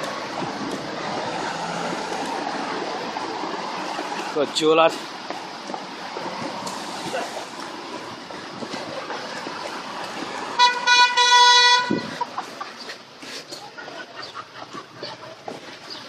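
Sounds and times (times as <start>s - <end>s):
street traffic hiss: 0.0s - 16.0s
vehicle horn honk: 10.5s - 12.2s.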